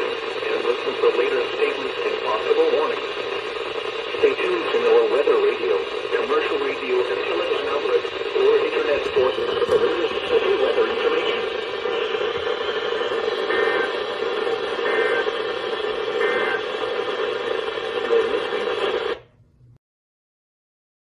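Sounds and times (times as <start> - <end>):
radio static hiss: 0.0 - 19.3
two-tone data bursts: 6.7 - 18.9.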